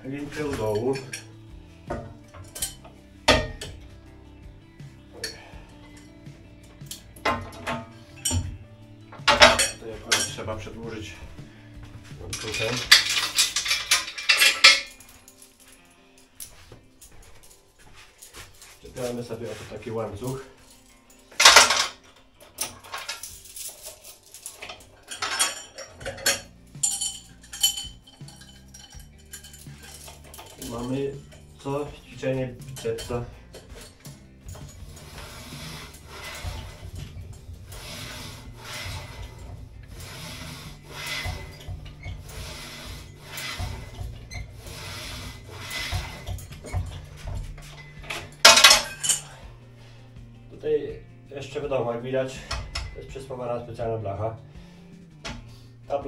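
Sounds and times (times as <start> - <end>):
metal chain clinking and rattling: 0.0 - 49.7, 52.3 - 53.4
cable rubbing over pulleys: 4.9 - 15.4, 16.4 - 20.8, 21.4 - 49.4.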